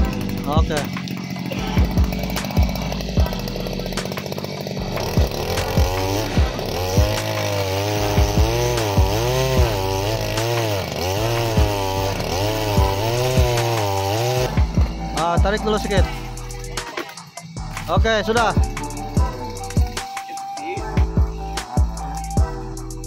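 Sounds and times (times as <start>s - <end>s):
background music with steady beat: 0.0s - 23.0s
small two-stroke engine running: 0.0s - 23.0s.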